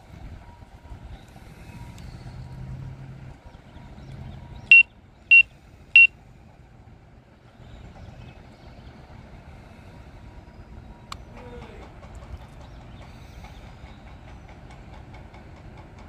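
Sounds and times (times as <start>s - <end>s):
loud high-pitched warning beeps: 4.7s - 6.1s.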